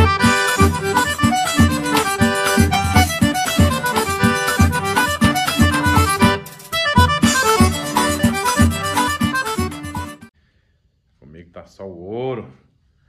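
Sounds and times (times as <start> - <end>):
instrumental music: 0.0 - 10.3
low thumping beat: 0.0 - 10.3.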